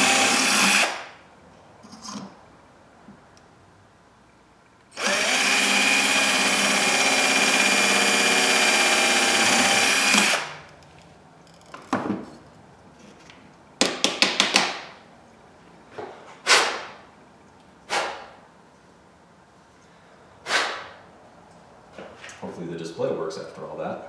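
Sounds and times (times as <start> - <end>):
cordless drill whining: 0.0 - 1.0, 5.0 - 10.6.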